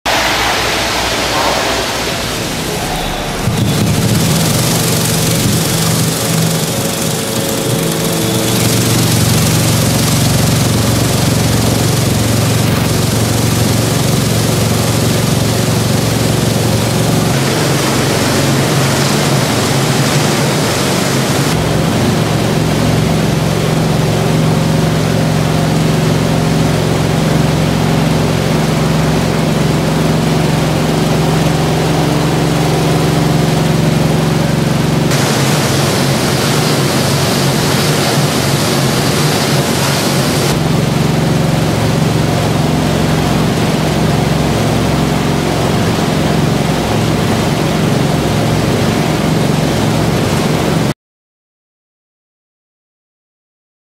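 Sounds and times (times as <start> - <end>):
shredder motor hum: 2.0 - 50.0
shredder grinding cans: 3.3 - 42.8.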